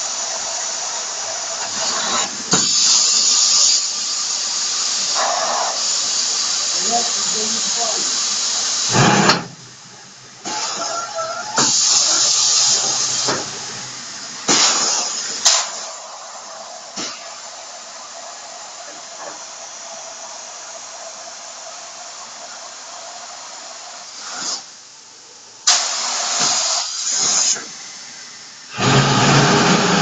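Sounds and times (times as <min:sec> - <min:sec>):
air exhaust hiss blasts: 0:00.0 - 0:30.0
steady hiss: 0:00.0 - 0:30.0
steady machine whine: 0:06.0 - 0:16.9, 0:27.6 - 0:30.0.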